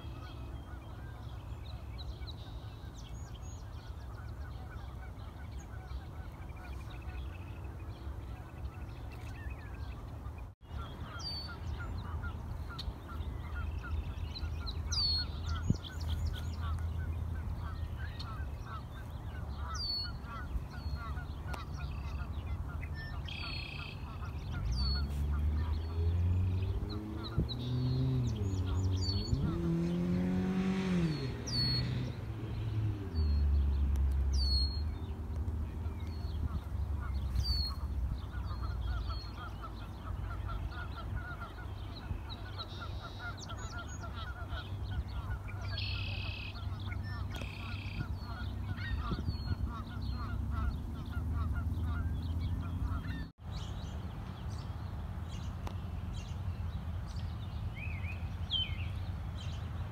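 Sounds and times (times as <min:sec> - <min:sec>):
chorus of birds calling: 0:00.0 - 0:59.9
low rumble of wind: 0:00.0 - 0:59.9
passing vehicle engine hum: 0:00.0 - 0:59.9
songbirds chirping: 0:00.0 - 0:59.9.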